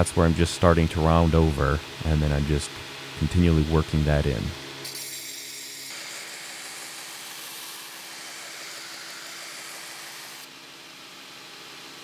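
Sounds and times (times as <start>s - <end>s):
belt grinder grinding steel: 4.9s - 10.4s.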